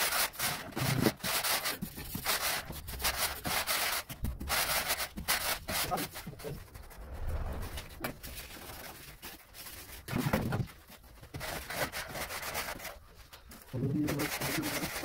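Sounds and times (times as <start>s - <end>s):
straightedge scraping floor screed: 6.6s - 10.1s.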